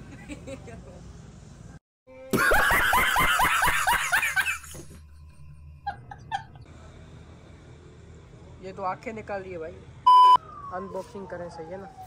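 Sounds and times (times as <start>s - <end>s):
man laughing hard: 2.3s - 4.8s.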